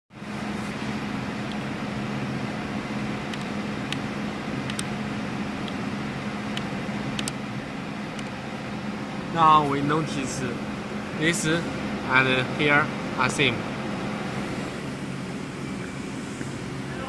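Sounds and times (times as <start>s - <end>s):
steady low hum: 0.1s - 17.0s
fan hiss: 0.2s - 17.0s
control panel key clicks: 4.7s - 4.9s, 6.6s - 7.4s.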